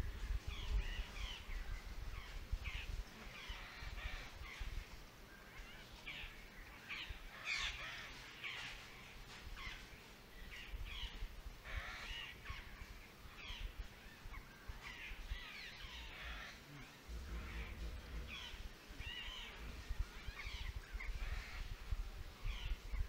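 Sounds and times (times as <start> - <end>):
low background rumble: 10.6 - 23.0
harsh animal calls: 15.8 - 21.5.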